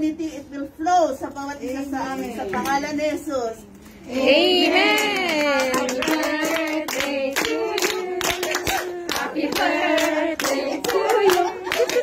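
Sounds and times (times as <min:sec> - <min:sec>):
group singing: 0:04.0 - 0:12.0
people clapping: 0:04.6 - 0:12.0.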